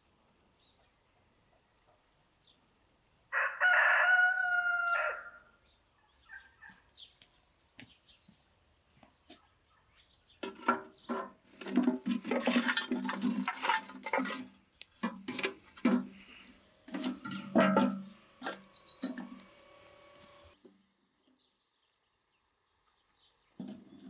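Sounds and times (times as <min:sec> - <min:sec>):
charcoal clattering into brazier: 0:10.4 - 0:19.4
metal tongs knocking and scraping: 0:16.9 - 0:19.4.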